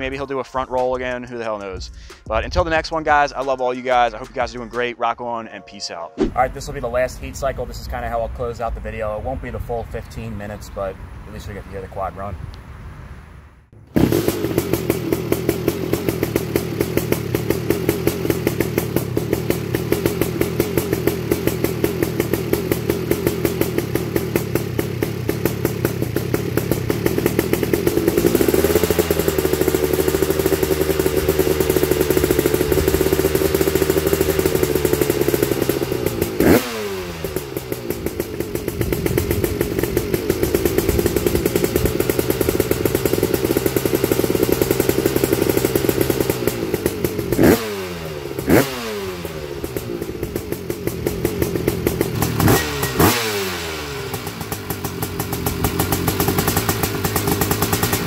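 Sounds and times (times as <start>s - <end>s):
two-stroke engine revving: 13.8s - 58.0s.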